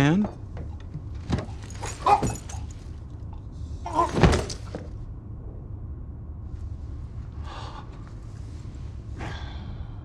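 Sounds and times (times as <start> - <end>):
train car low rumble: 4.8 - 10.0.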